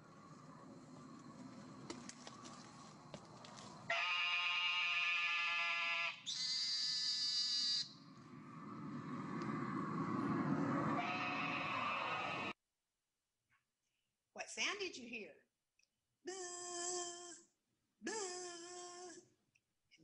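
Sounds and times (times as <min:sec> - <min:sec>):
toad calling with nasal buzzes: 0:03.9 - 0:07.9.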